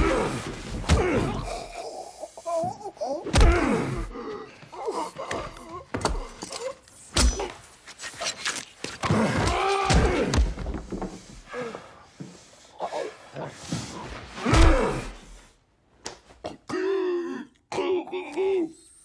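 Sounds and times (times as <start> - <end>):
bodies slamming into walls: 0.0 - 1.8, 3.3 - 4.2, 9.0 - 11.5, 14.4 - 15.4
man grunting: 0.0 - 6.4.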